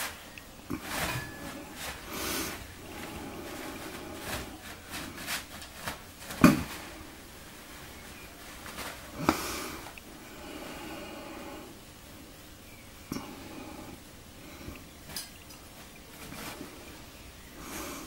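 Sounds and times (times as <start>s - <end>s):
paper rustling: 0.0s - 9.2s.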